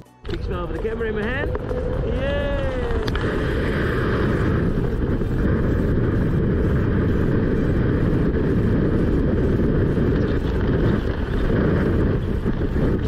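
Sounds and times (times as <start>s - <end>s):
wind roaring over microphone: 0.3s - 13.0s.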